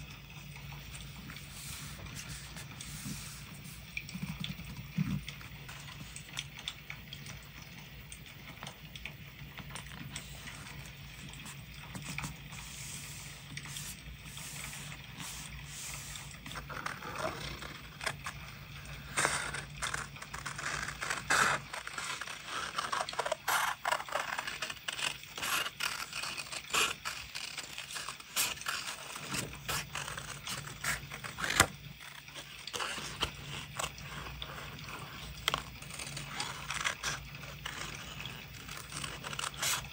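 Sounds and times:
hands smoothing paper: 0.7 - 6.0, 10.0 - 18.3
paper rustling: 0.7 - 6.2, 9.6 - 18.4, 19.0 - 39.9
scissors snipping paper: 19.0 - 39.9.

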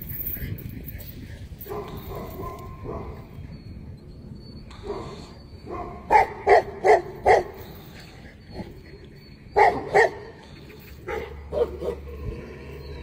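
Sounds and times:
large dog barking: 1.6 - 3.3, 4.8 - 7.6, 9.6 - 10.4, 11.1 - 12.2.

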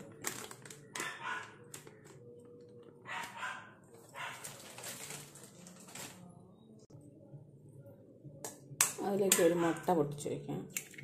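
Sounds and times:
plastic packet crinkling: 0.0 - 2.9, 4.1 - 6.3.

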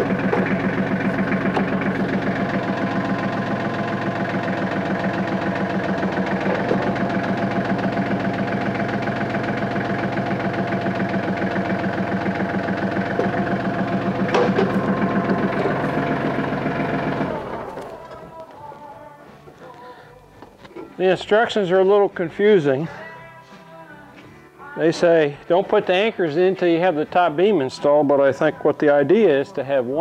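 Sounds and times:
diesel engine idling: 0.0 - 23.6.

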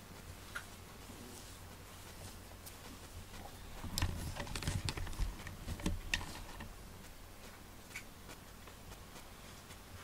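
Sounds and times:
hands rubbing cat fur: 0.2 - 7.6
collar clicks and knocks: 3.8 - 6.8.

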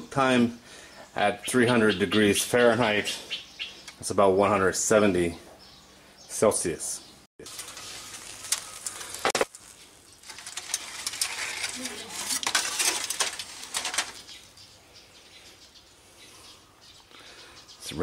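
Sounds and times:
aluminium foil crinkling: 7.4 - 14.6.

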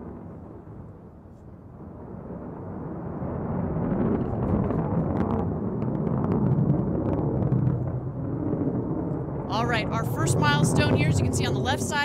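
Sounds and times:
rocket engine rumble: 0.0 - 12.0
sharp crackling pops: 4.0 - 9.5.

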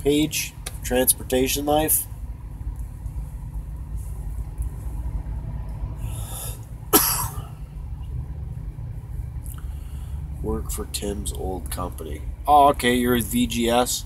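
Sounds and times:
short breath in: 6.0 - 6.7, 9.6 - 10.2
man coughing: 6.9 - 7.6.

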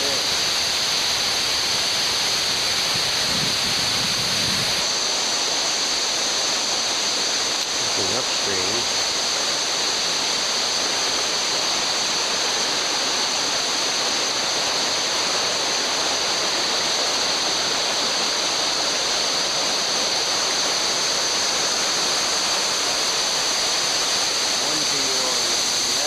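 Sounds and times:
fast-flowing river rushing: 0.0 - 26.0.

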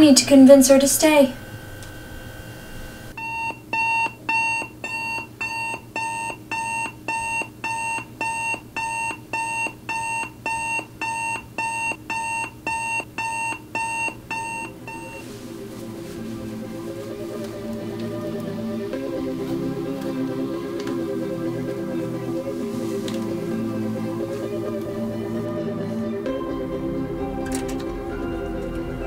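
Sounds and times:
digital alarm clock beeping: 3.2 - 15.2
soft music: 14.3 - 29.0.

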